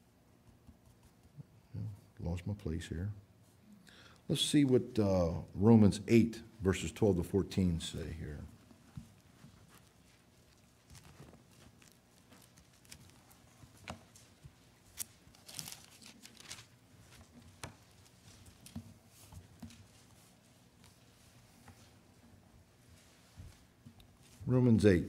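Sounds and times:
thin pages rustling: 8.5s - 22.0s.

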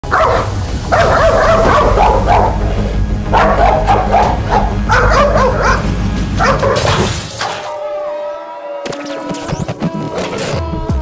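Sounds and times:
background music with low beat: 0.0s - 7.1s
dog barking: 0.1s - 2.6s, 3.3s - 7.1s.

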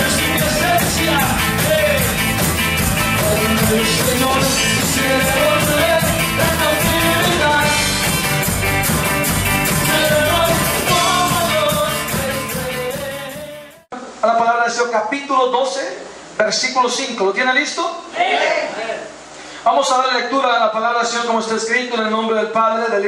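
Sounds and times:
steady drum beat: 0.0s - 13.8s
band music with singing: 0.0s - 13.9s.

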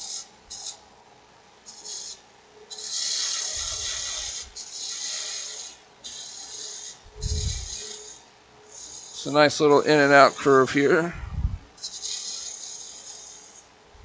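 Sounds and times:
gouge shaving wood on a lathe: 2.8s - 7.0s.

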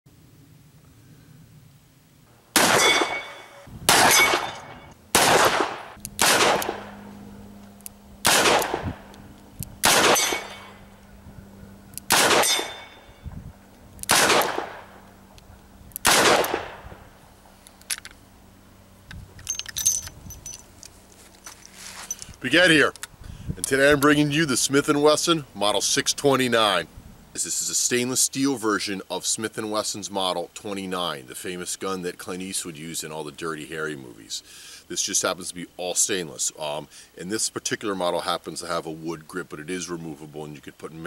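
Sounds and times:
revolver gunshots echoing: 2.5s - 7.0s, 8.2s - 9.0s, 9.8s - 10.8s, 12.1s - 13.0s, 14.1s - 15.0s, 16.0s - 16.9s.

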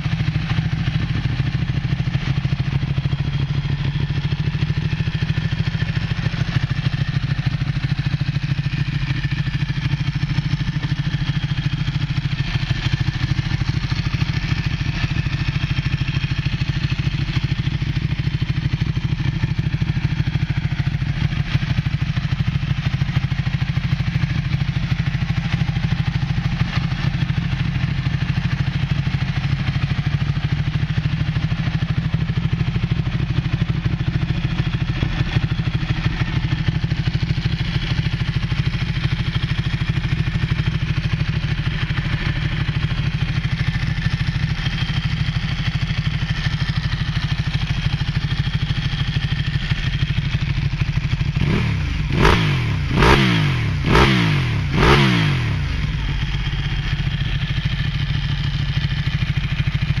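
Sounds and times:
motorcycle engine idling: 0.0s - 60.0s
motorcycle engine revving: 0.0s - 60.0s.

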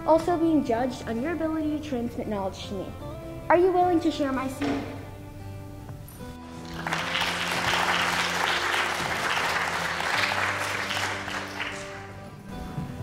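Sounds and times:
soft background music: 0.0s - 13.0s
audience applause: 6.5s - 12.4s.

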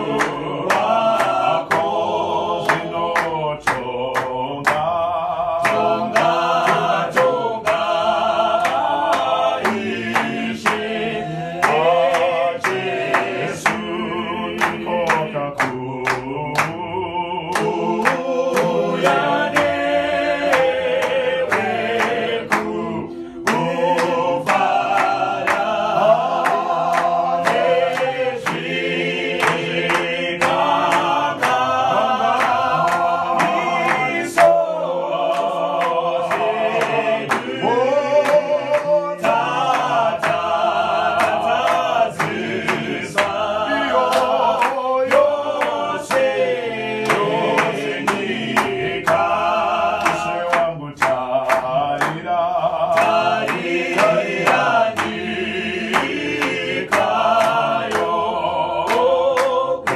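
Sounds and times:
group singing a hymn: 0.0s - 59.9s
hand claps: 0.0s - 59.9s.

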